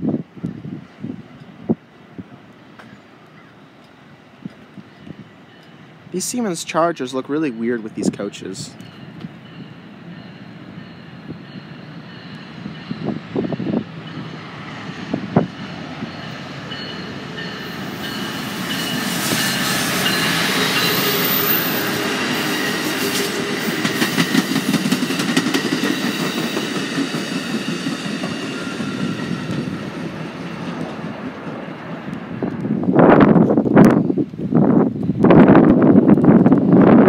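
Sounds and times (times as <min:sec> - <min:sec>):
passenger train passing: 0:00.0 - 0:37.0
train wheels clacking over rail joints: 0:21.7 - 0:31.6.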